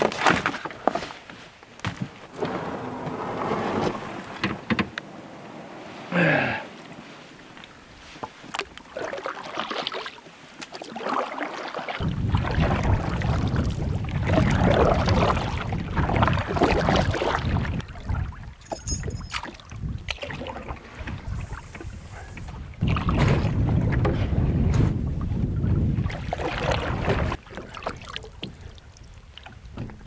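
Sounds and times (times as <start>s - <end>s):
paddles splashing in water: 0.0s - 30.0s
wind buffeting microphone: 12.0s - 27.4s.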